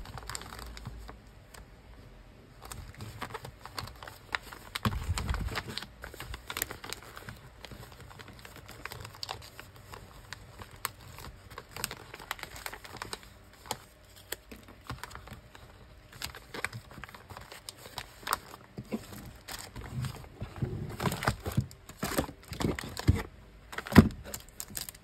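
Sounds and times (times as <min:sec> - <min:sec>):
plastic bags crinkling: 0:00.0 - 0:01.6, 0:02.5 - 0:25.0.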